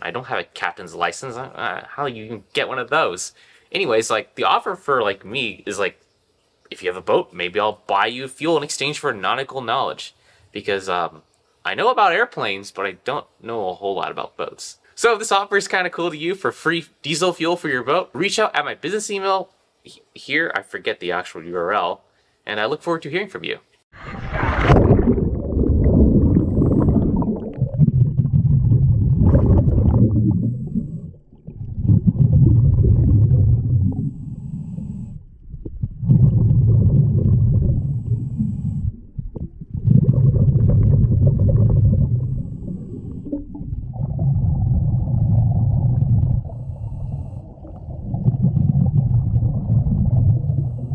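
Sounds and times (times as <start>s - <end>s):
underwater rumble of moving water: 24.0s - 50.9s.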